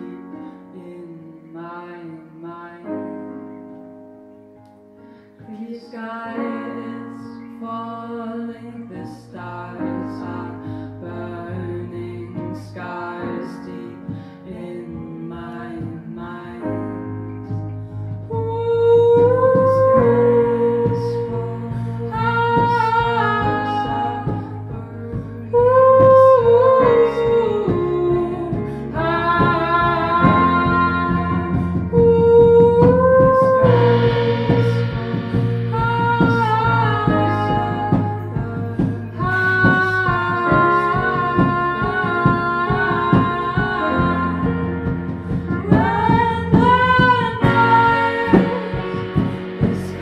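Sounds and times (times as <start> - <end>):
woman singing wordless notes: 0.0 - 3.6, 5.4 - 50.0
live band playing slow song: 16.9 - 50.0.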